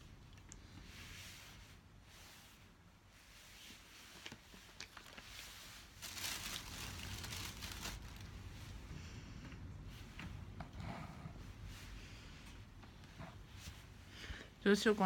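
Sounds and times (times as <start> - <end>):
rustling and handling noise: 0.0 - 15.0.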